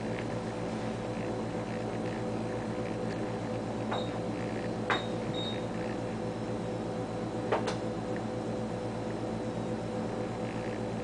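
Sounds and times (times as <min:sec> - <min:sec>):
ultrasound machine hum: 0:00.0 - 0:11.0.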